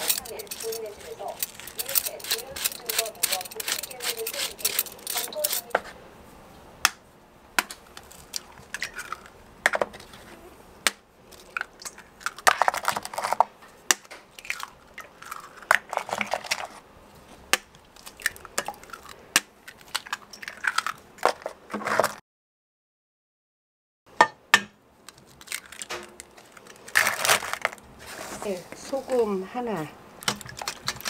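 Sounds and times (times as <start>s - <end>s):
utensils and containers knocking: 0.0s - 5.8s
crunching rustling bursts: 0.0s - 6.5s, 25.0s - 31.0s.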